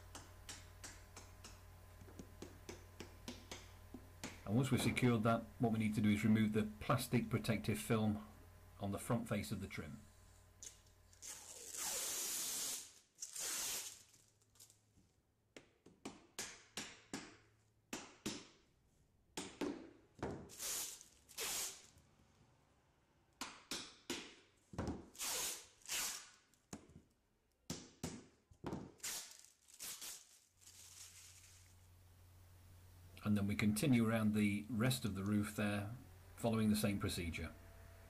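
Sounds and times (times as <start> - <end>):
plastic film being peeled off: 11.1 - 14.8, 25.2 - 26.6, 29.0 - 31.9.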